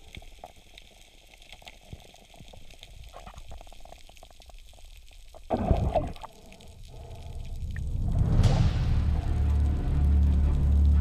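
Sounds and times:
small clicks and crackles: 0:00.0 - 0:08.3
water sounds: 0:00.0 - 0:11.0.

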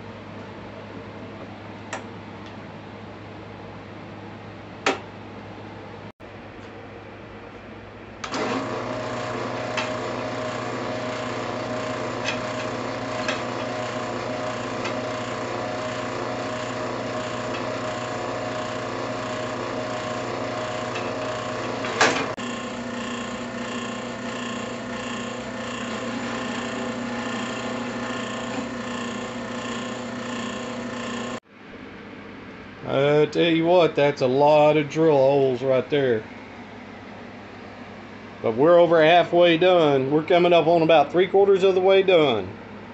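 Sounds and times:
drill press motor running: 0:08.2 - 0:31.4.

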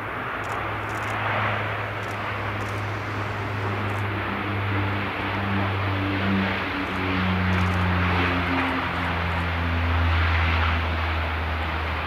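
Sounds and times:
turboprop plane droning: 0:00.0 - 0:12.0.

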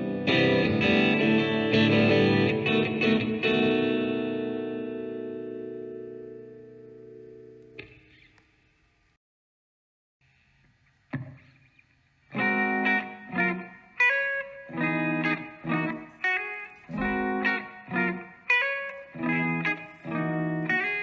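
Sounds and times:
electric guitar chords: 0:00.0 - 0:08.3, 0:12.3 - 0:21.0
plucked guitar note: 0:12.4 - 0:21.0.

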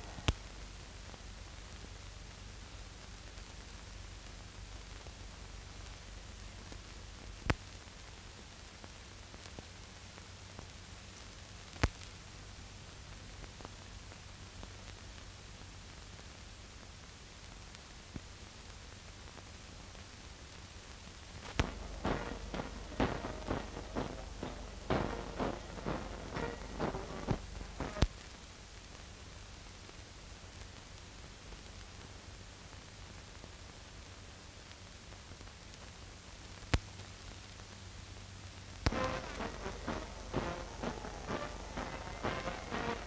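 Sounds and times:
film soundtrack hiss and hum: 0:00.0 - 0:43.0
music with sharp beats: 0:21.6 - 0:28.1, 0:38.9 - 0:43.0.

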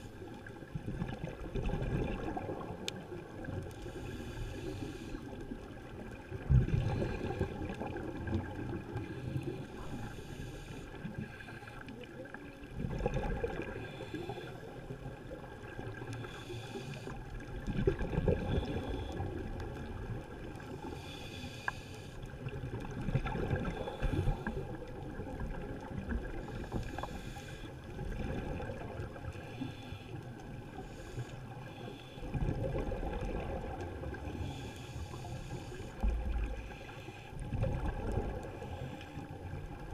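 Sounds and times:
diver's exhaled bubbles gurgling: 0:00.0 - 0:03.7, 0:05.8 - 0:09.6, 0:12.6 - 0:16.1, 0:17.4 - 0:21.0, 0:22.4 - 0:27.3, 0:27.9 - 0:29.3, 0:32.2 - 0:34.6, 0:37.4 - 0:38.7
steady underwater hiss: 0:00.0 - 0:39.9.

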